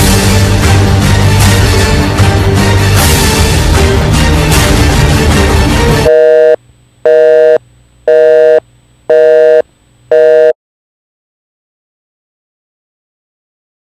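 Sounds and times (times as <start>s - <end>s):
music: 0.0s - 6.1s
telephone busy signal beeps: 6.1s - 10.6s.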